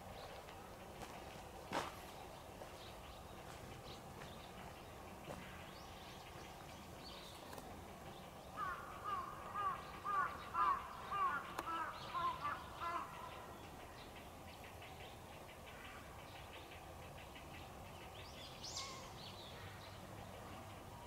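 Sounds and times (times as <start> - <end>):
faint outdoor background: 0.0 - 21.0
bird calling: 8.6 - 14.0.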